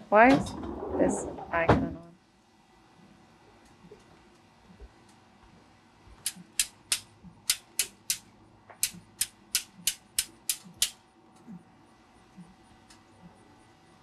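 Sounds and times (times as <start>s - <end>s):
metal tongs snapping: 6.2s - 8.2s.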